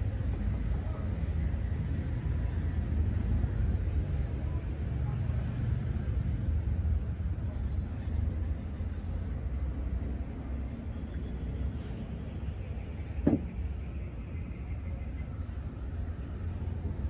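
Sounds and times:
short knock: 0:13.2 - 0:13.6.

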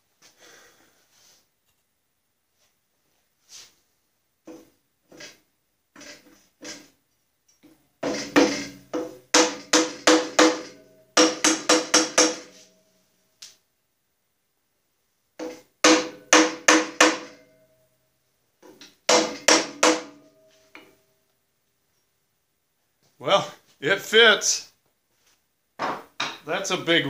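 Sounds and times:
hammer strikes ringing on iron: 0:08.0 - 0:12.7, 0:15.4 - 0:17.6, 0:19.1 - 0:20.9.

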